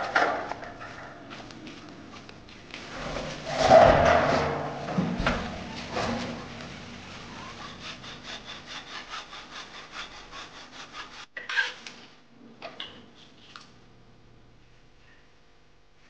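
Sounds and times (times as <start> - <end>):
saw cutting plastic pipe: 3.0 - 11.8
metal spatula scraping wok: 5.6 - 11.8.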